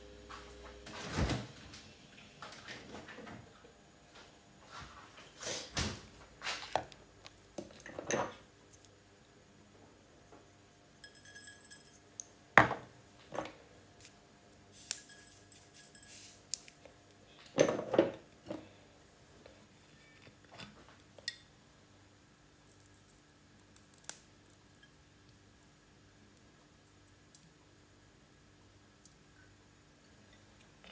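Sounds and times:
dishes and utensils clinking: 7.7s - 8.4s, 11.0s - 12.0s, 15.0s - 16.4s.

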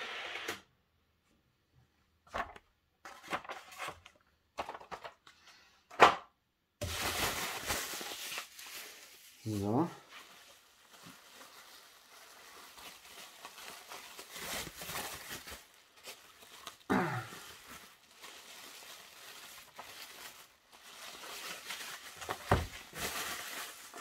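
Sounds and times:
bubble wrap crinkling: 6.8s - 24.0s.

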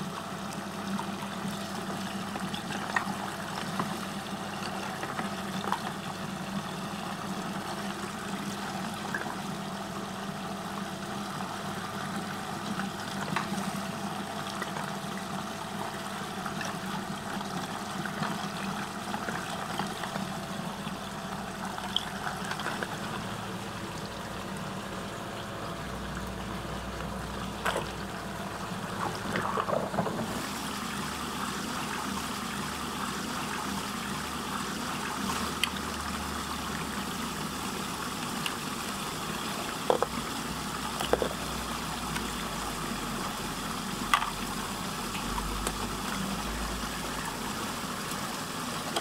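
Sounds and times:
water swirling and draining: 12.2s - 49.0s.

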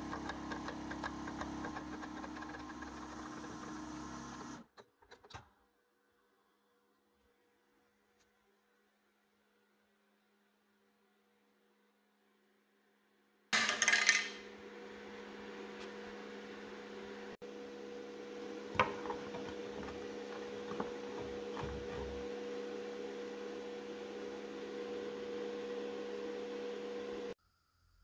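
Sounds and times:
electrical hum: 14.4s - 27.4s.

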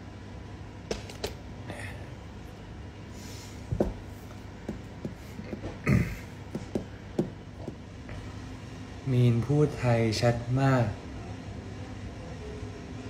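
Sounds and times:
steady low hum: 0.0s - 13.0s
soft knocks and handling noises: 3.7s - 5.8s, 6.5s - 7.8s.

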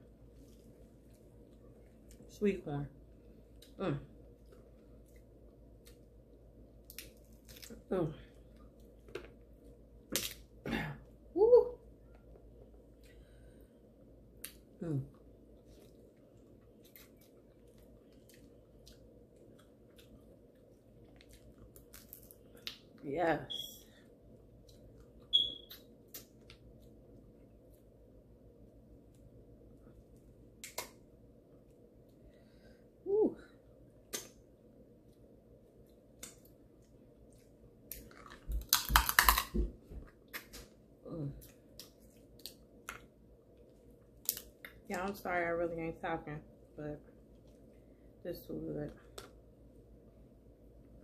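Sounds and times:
crab leg cracking and crunching: 6.8s - 7.8s, 10.0s - 10.6s, 21.0s - 23.0s, 30.6s - 31.0s, 37.8s - 40.7s, 44.2s - 44.9s
faint chewing: 14.3s - 23.0s
crab shells cracking: 37.8s - 39.6s, 44.2s - 44.7s.

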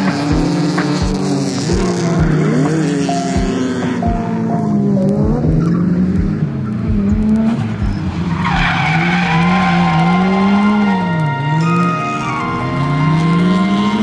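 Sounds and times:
car engine revving high: 0.0s - 14.0s
tyres screeching: 7.4s - 14.0s.

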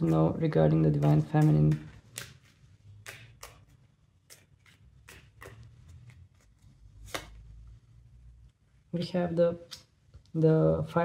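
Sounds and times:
cards being shuffled: 0.0s - 7.6s.

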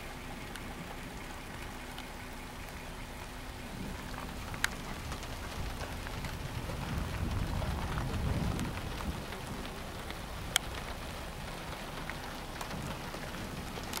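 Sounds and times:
drops ticking: 0.0s - 14.0s
low rumble: 0.0s - 14.0s
rain falling: 0.0s - 14.0s.

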